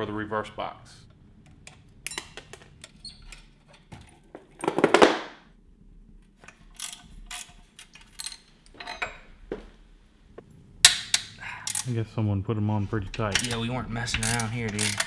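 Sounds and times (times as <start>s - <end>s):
metallic clicks of wrenches: 6.4s - 9.2s, 10.9s - 12.0s, 13.1s - 15.0s
rasping ratchet burst: 13.4s - 15.0s.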